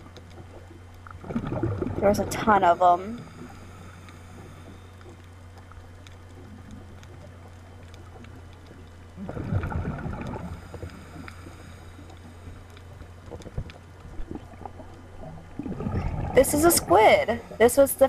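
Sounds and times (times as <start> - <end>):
low underwater hum: 0.0 - 18.0
bubbling burst: 1.2 - 2.0, 9.2 - 10.5, 15.6 - 16.7.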